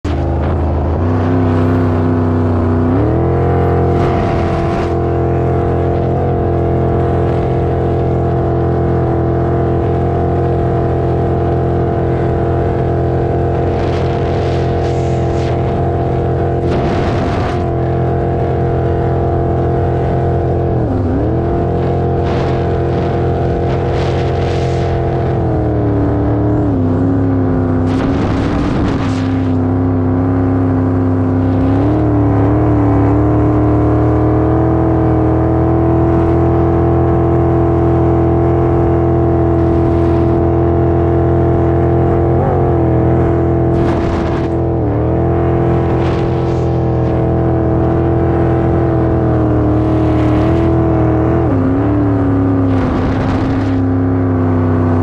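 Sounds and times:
boat engine drone: 0.0s - 55.0s
rushing noise: 13.3s - 18.6s, 21.3s - 25.9s, 27.6s - 30.0s, 43.7s - 48.4s, 52.6s - 54.2s.

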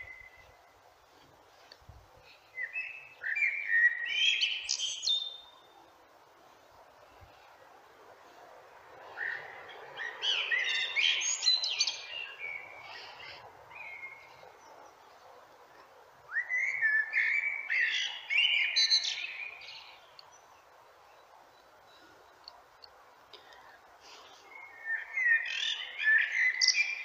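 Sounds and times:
blackbird singing: 2.5s - 5.7s, 9.2s - 15.0s, 16.3s - 20.5s, 24.5s - 27.0s.

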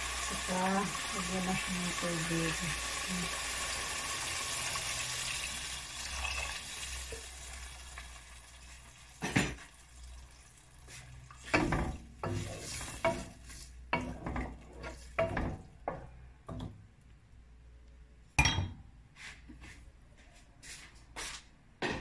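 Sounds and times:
sizzling pot as water poured: 0.0s - 15.4s
wooden spoon scraping pot: 10.9s - 16.1s.

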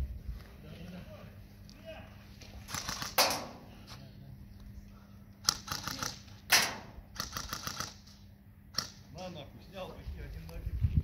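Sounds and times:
airsoft guns firing bursts: 2.7s - 3.5s, 5.4s - 8.2s
sharp cracks: 2.7s - 3.6s, 5.4s - 9.0s.

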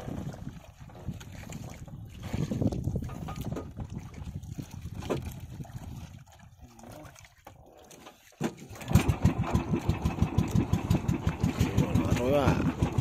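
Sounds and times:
boat engine knocking: 8.4s - 13.0s.

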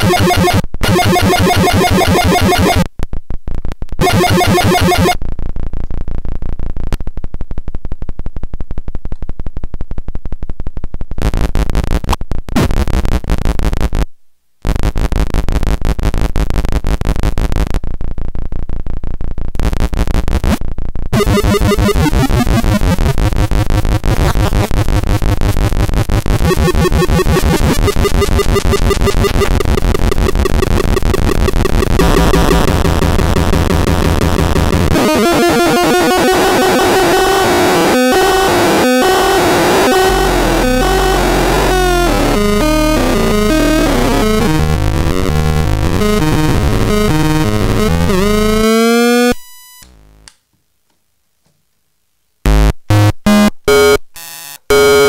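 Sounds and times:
harsh pulsing electronic noise: 0.0s - 2.9s, 4.0s - 5.2s, 21.2s - 50.2s, 52.5s - 55.0s
low hum: 21.2s - 48.6s.

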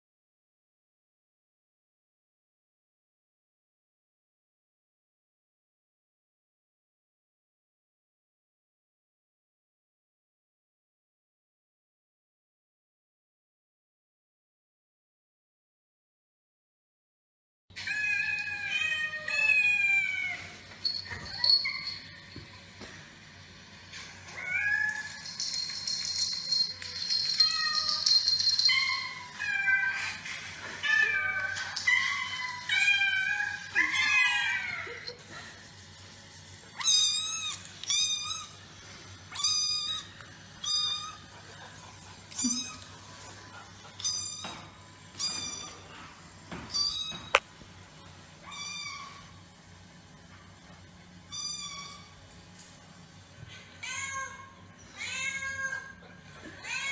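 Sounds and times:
puppy whining: 17.8s - 22.4s, 24.3s - 35.5s, 36.7s - 38.6s, 39.3s - 47.4s.

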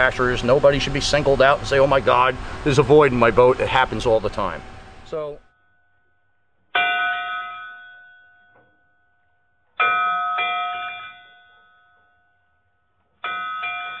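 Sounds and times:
metal bell ringing: 6.8s - 9.2s, 9.8s - 12.6s, 13.2s - 14.0s.

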